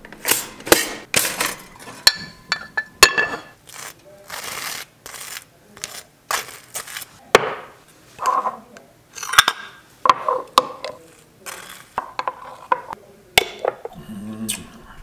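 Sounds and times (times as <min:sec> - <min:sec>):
knife scraping across toast: 0:03.7 - 0:07.1.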